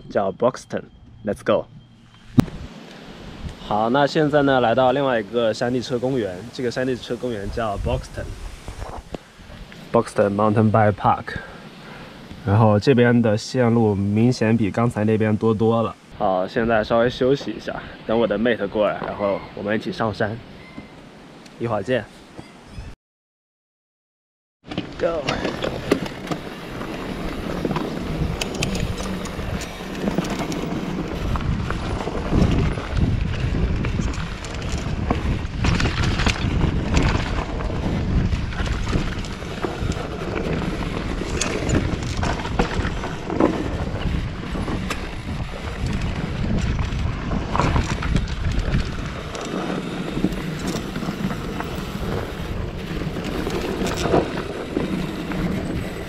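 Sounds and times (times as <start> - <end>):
wind rumbling on microphone: 0.0 - 23.0, 24.8 - 56.0
bike knocks and rattles: 24.7 - 56.0.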